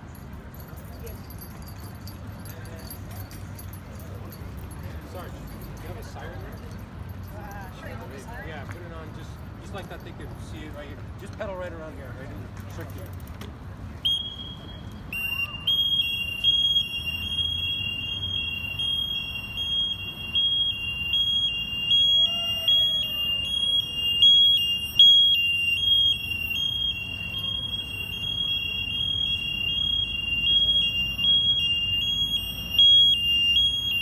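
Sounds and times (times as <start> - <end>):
electronic siren two-tone warble: 15.2 - 34.0.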